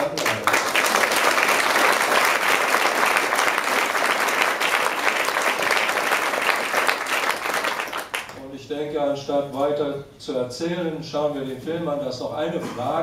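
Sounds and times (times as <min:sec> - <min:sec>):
audience clapping: 0:00.0 - 0:08.4.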